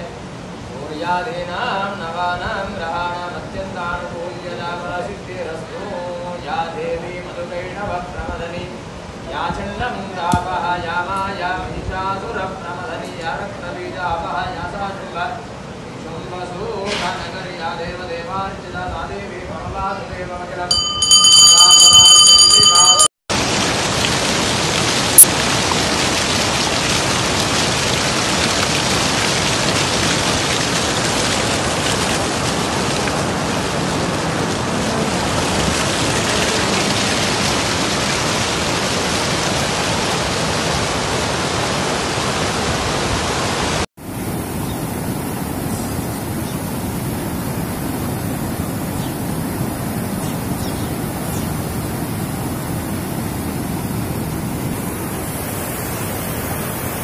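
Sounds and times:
floodwater rushing: 20.8 - 57.0.

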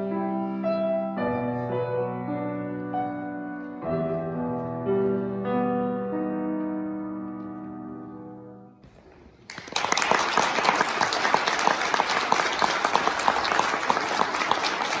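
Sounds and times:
audience applause: 9.4 - 15.0.

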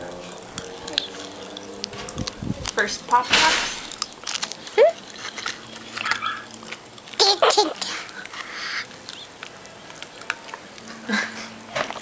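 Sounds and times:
breathy hiss: 7.8 - 9.0.

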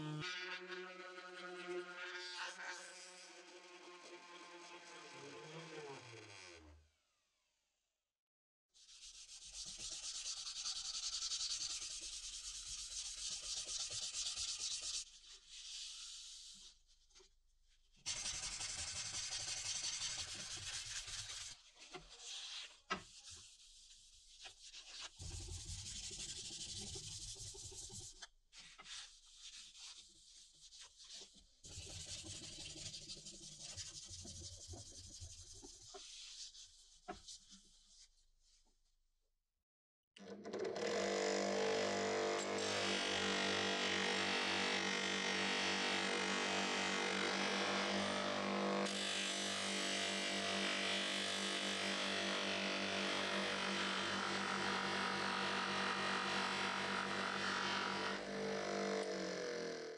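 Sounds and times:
sandpaper rubbing on steel blade: 18.1 - 21.6.

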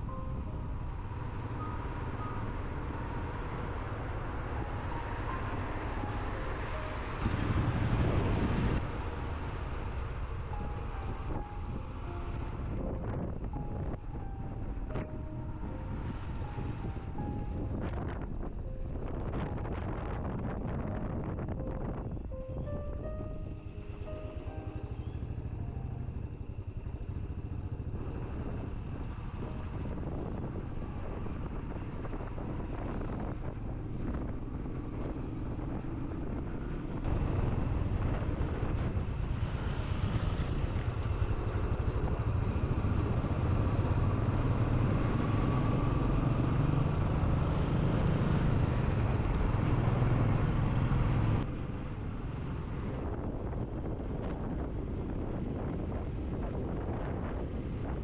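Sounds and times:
motorcycle engine running: 6.6 - 13.9.

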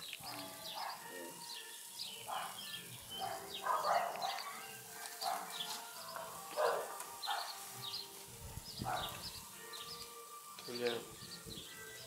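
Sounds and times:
small birds chirping: 0.0 - 12.0
dog barking: 0.7 - 1.0, 2.3 - 2.6, 3.2 - 4.6, 5.2 - 5.6, 6.2 - 7.6, 8.8 - 9.2.

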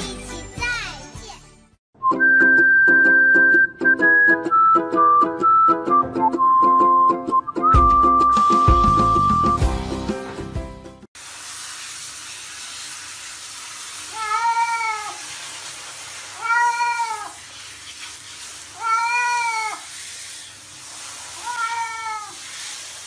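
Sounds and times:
cat meowing: 14.2 - 15.2, 16.4 - 17.4, 18.8 - 19.8, 21.4 - 22.4.

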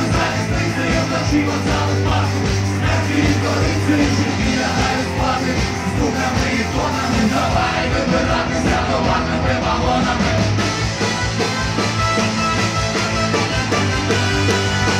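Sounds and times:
vocalist singing and shouting: 0.0 - 10.6
bass line: 0.0 - 14.9
driving drum beat: 0.0 - 14.9
live rock band playing: 0.0 - 14.9.

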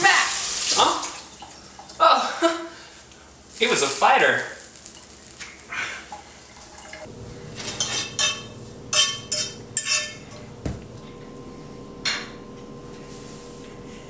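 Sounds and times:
utensil scraping frying pan: 4.6 - 10.5.

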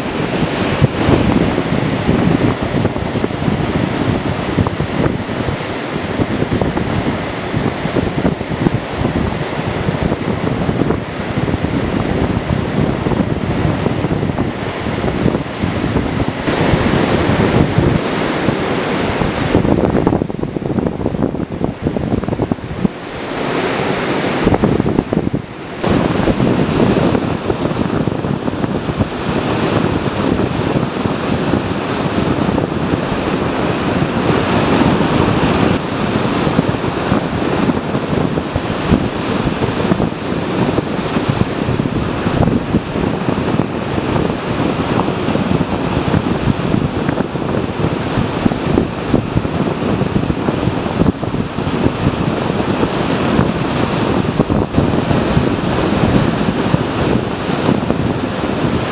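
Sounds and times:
surf washing on sand: 0.0 - 58.9
wind buffeting microphone: 0.0 - 58.9.

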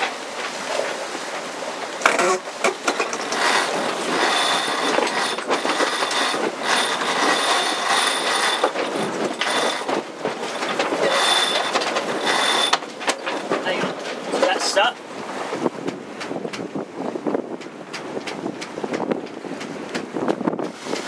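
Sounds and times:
winch pawls ratcheting: 2.0 - 14.7
winch squealing whir: 2.8 - 14.0.

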